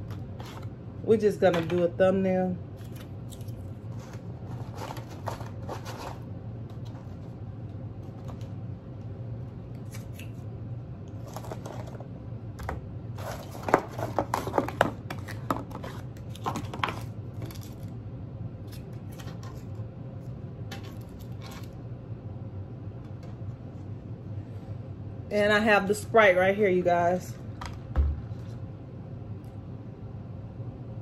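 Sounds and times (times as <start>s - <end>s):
steady low hum: 0.0s - 31.0s
packaging rustling and crinkling: 3.0s - 6.2s, 13.2s - 17.9s.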